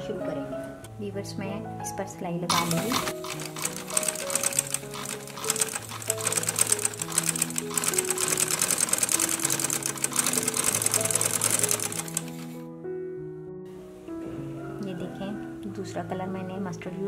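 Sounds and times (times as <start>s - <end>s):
background music with held notes: 0.0s - 17.0s
sewing machine rattling: 2.5s - 12.6s.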